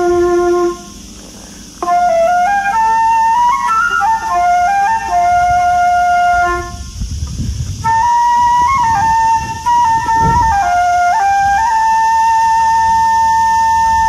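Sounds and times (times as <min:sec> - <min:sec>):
solo flute melody: 0:00.0 - 0:01.2, 0:01.8 - 0:07.0, 0:07.8 - 0:14.0
low rumble: 0:04.3 - 0:10.9.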